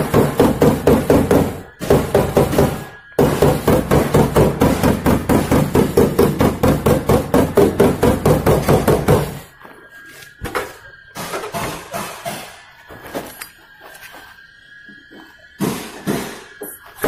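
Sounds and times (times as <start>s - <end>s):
hammer tapping on sheet metal: 0.0s - 9.4s.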